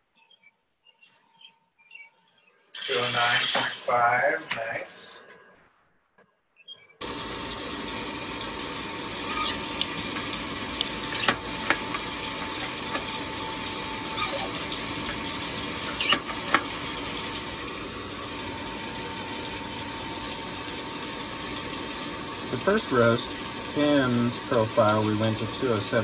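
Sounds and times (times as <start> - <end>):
hot-air fan blowing: 7.0 - 26.0.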